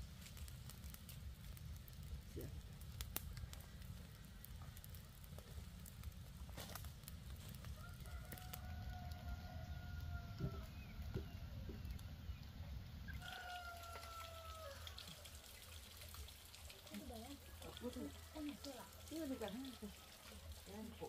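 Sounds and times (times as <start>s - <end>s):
rooster crowing: 7.7s - 10.8s, 13.1s - 15.3s.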